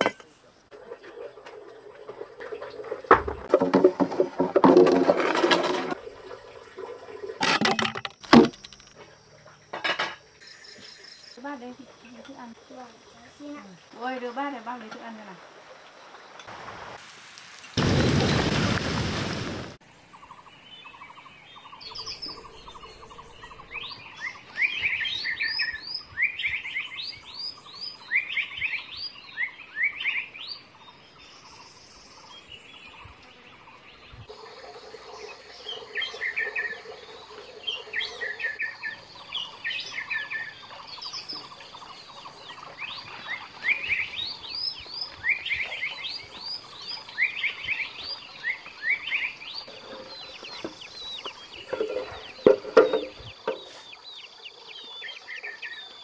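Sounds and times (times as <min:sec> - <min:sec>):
small birds chirping: 0:10.4 - 0:16.5, 0:20.0 - 0:56.0.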